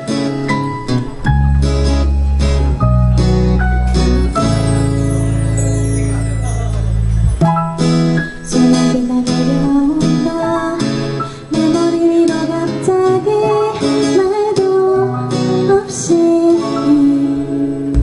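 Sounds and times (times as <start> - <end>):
acoustic guitar strumming: 0.0 - 18.0
live band playing pop ballad: 0.0 - 18.0
female lead vocal: 8.4 - 17.7.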